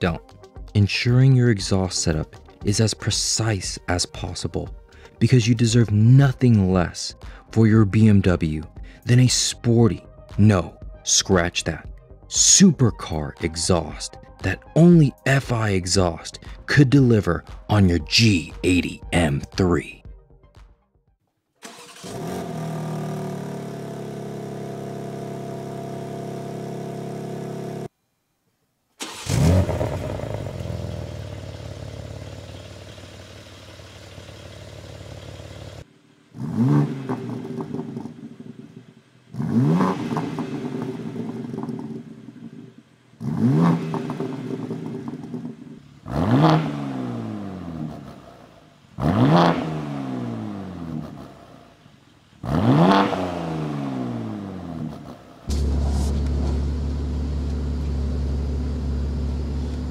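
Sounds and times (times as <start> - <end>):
engine starting with a flare: 21.6 - 23.8, 29.0 - 35.6
car engine idling: 29.0 - 52.8, 53.7 - 59.9
engine throttle blips: 29.0 - 59.9.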